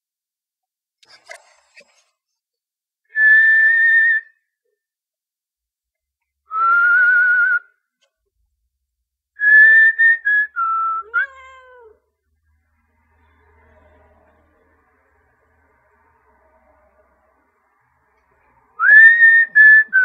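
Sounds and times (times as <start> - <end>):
cat meowing: 11.0 - 12.1.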